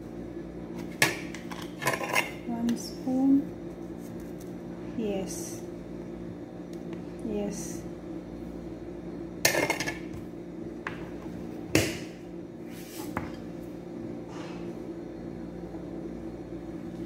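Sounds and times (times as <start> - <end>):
kitchen utensils clattering: 1.3 - 2.4.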